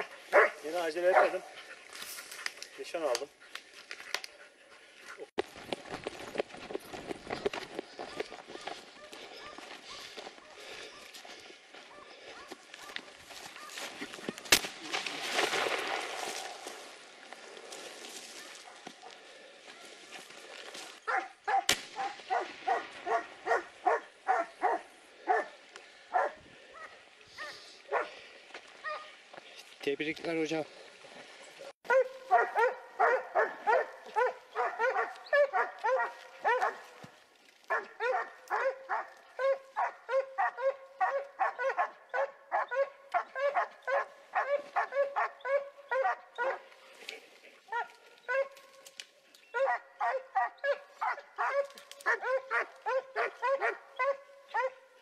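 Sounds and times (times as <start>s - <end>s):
dog barking rapidly: 0.0s - 1.4s, 21.1s - 25.5s, 31.9s - 36.8s, 37.7s - 46.6s, 49.6s - 54.8s.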